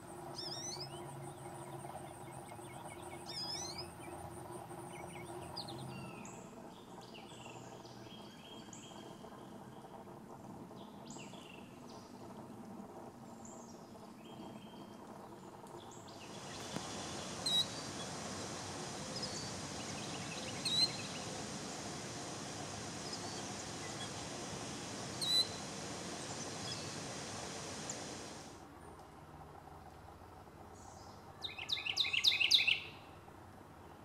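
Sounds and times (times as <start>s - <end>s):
background hiss: 0.0s - 28.7s
faint bird chirps: 0.3s - 9.8s, 16.1s - 21.4s, 22.9s - 28.2s
sharp high bird calls: 16.4s - 18.1s, 20.4s - 21.3s, 25.1s - 28.1s.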